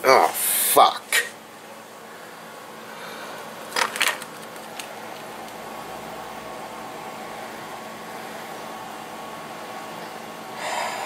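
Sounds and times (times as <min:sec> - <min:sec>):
steady low hum: 0:00.0 - 0:11.0
objects clattering: 0:03.6 - 0:05.6.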